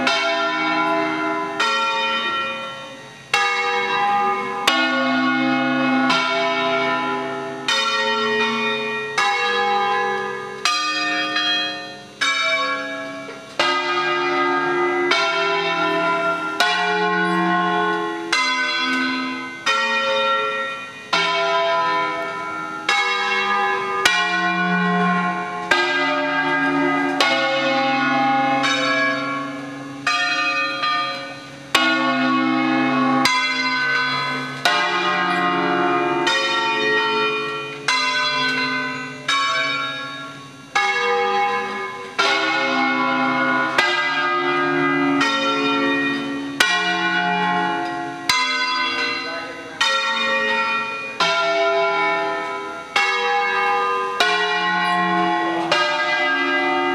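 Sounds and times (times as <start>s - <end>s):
church bells ringing: 0.0s - 56.9s.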